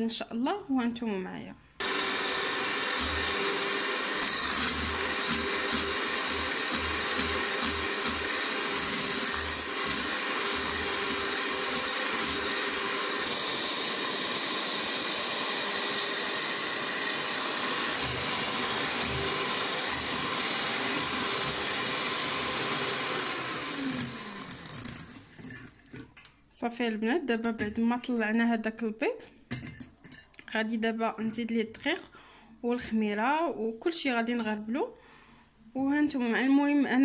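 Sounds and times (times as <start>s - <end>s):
electric hand mixer running: 1.8s - 25.6s.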